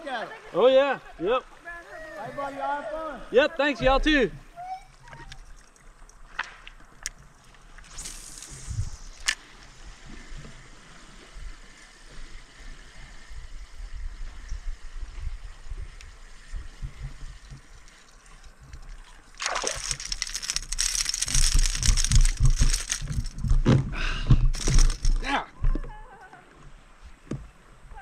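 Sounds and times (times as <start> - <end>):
fish splashing at water surface: 18.8 - 23.4.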